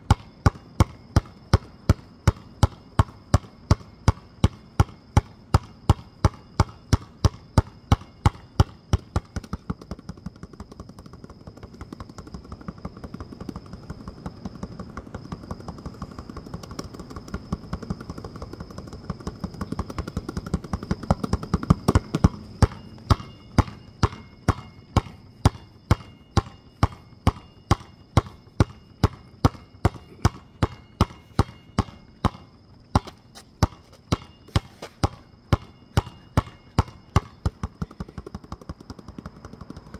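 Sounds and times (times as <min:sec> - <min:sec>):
basketball dribbled on pavement: 0:00.0 - 0:39.9.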